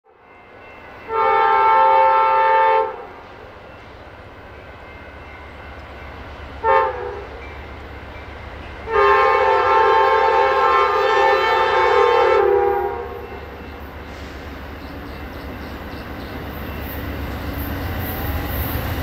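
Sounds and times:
low rumble of locomotive: 0.1 - 19.0
locomotive air horn blasts: 1.1 - 3.2, 6.6 - 7.4, 8.9 - 13.4.

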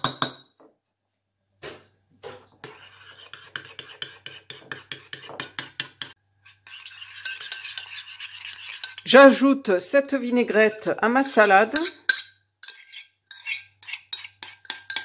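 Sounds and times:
spoon scraping a mug: 2.3 - 9.3, 10.5 - 15.0
spoon clinking in a mug: 11.7 - 15.0.

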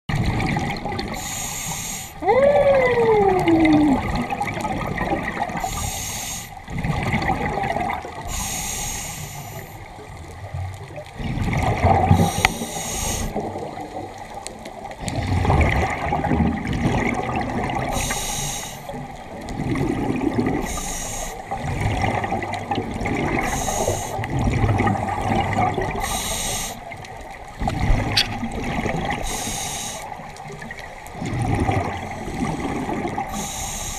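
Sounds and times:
underwater bubbling: 0.1 - 33.9
diver breathing through regulator: 5.6 - 6.6, 8.3 - 9.8, 12.1 - 13.4, 17.9 - 19.0, 23.4 - 24.3, 26.0 - 26.8, 29.2 - 30.2, 32.1 - 33.9.

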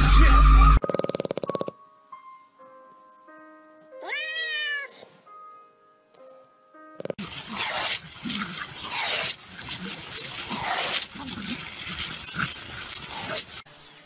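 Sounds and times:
hose spraying water: 7.2 - 14.0.

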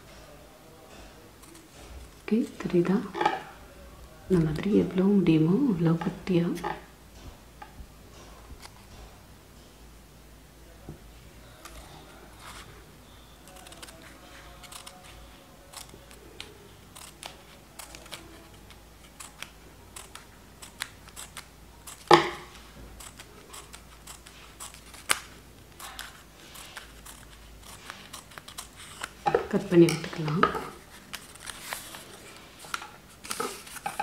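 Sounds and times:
scissors snipping paper: 13.4 - 34.0.

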